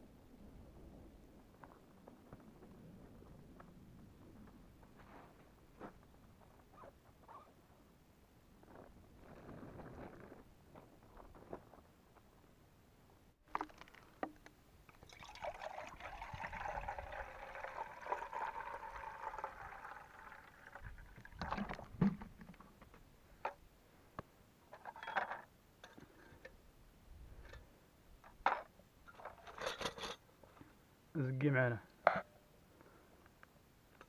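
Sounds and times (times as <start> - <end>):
water poured into teapot: 14.9 - 21.9.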